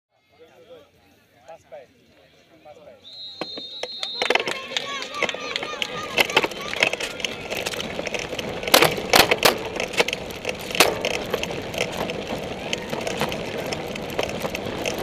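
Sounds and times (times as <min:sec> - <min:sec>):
bike rattling over rough grass: 0:03.5 - 0:15.0.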